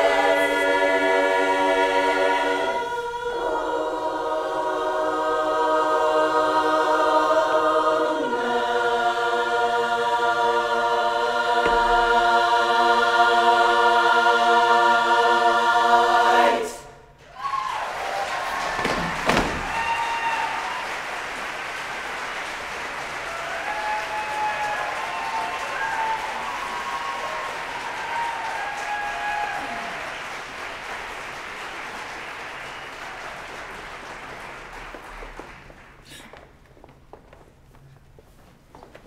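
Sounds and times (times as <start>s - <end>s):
whoops: 17.2s - 21.0s, 23.3s - 30.2s
audience applauding and cheering: 17.2s - 36.3s.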